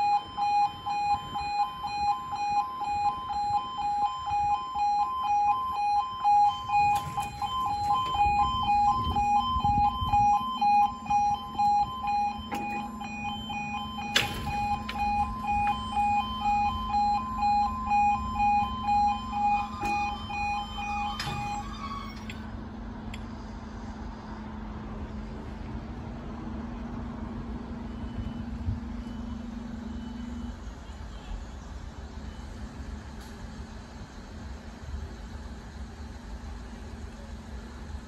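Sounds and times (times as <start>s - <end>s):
two-tone warning alarm: 0.0s - 22.4s.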